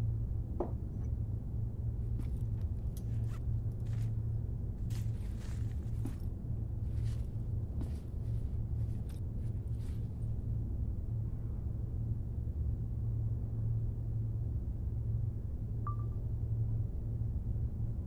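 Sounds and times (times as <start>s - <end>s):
steady low hum: 0.0s - 18.0s
fabric backpack rustling: 4.9s - 10.1s.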